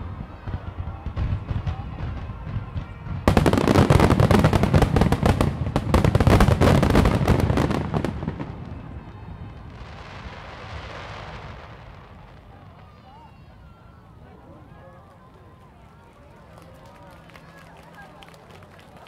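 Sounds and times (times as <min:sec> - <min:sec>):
fireworks bursting: 0:00.0 - 0:13.7.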